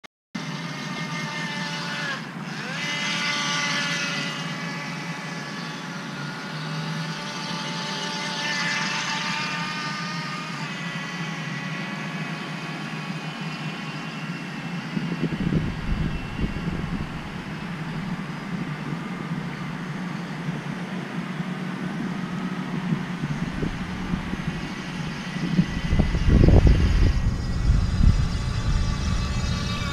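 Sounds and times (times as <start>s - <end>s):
electric boat motor whining: 0.4s - 29.9s
wind buffeting microphone: 14.9s - 19.9s, 22.0s - 29.9s.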